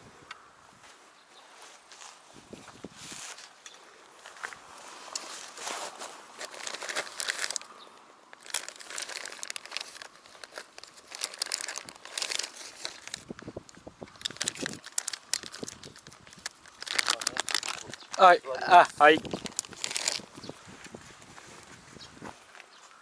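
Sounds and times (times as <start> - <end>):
fabric bag rustling: 4.8 - 7.6, 8.4 - 13.3, 19.0 - 20.5
plastic packet crinkling: 5.2 - 7.7, 8.4 - 20.5.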